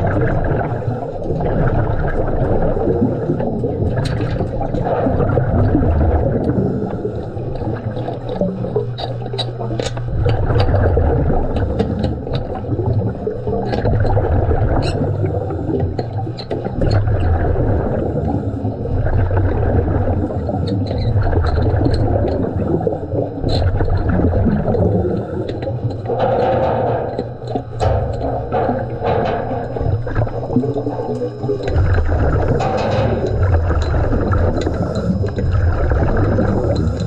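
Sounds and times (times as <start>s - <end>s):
bubbles gurgling: 0.0s - 37.0s
diver breathing underwater: 5.9s - 8.5s, 10.1s - 26.2s, 27.0s - 37.0s
clicks and taps on metal: 25.5s - 35.5s.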